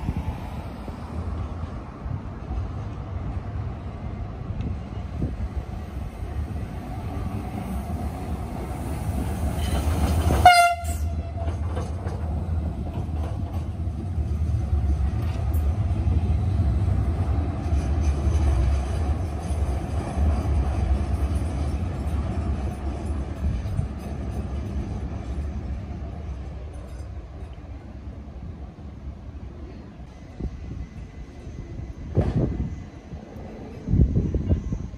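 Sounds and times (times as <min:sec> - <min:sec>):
tram wheels rumbling: 0:00.0 - 0:34.9
tram horn blast: 0:09.6 - 0:11.7.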